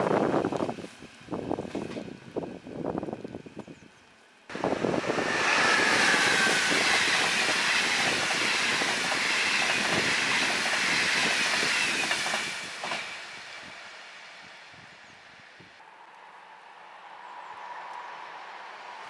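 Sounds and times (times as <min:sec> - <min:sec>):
train passing at speed: 0:04.3 - 0:19.0.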